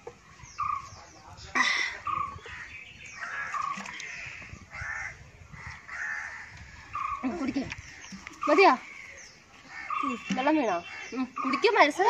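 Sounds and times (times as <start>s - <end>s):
crows cawing: 2.4s - 7.2s, 7.8s - 11.8s.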